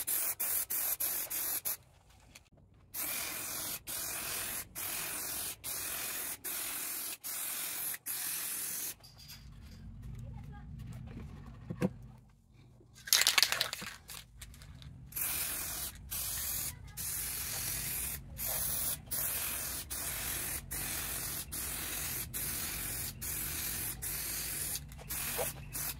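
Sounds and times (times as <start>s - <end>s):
spray paint can hissing: 0.0s - 1.8s, 3.0s - 9.0s, 15.1s - 25.9s.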